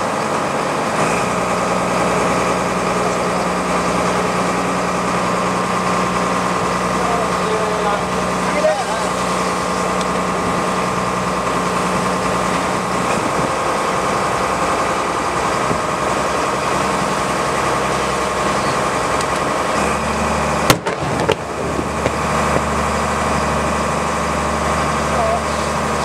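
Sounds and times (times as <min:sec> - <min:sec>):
boat engine idling: 0:00.0 - 0:26.0
firework bangs: 0:20.6 - 0:22.7.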